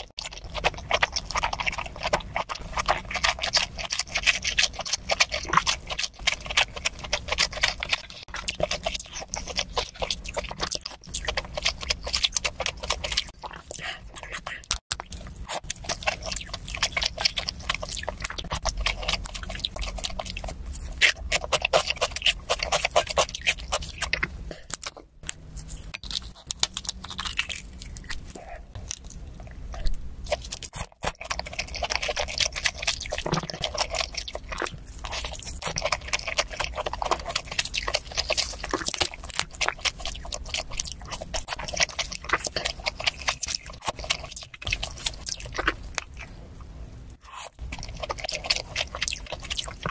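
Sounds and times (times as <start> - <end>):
person chewing and crunching: 0.0 - 49.9.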